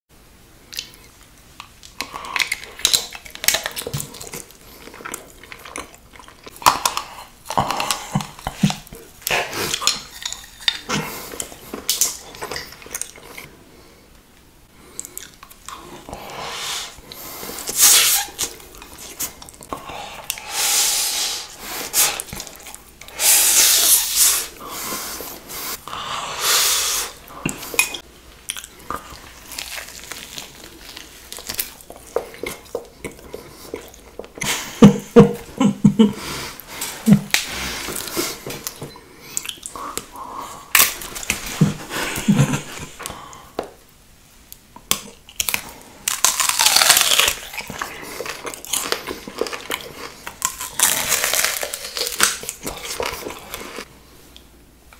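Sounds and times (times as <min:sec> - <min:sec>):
chewing and biting food: 0:00.7 - 0:13.5, 0:27.3 - 0:34.7, 0:44.8 - 0:53.9
loud hissing bursts: 0:20.4 - 0:22.1.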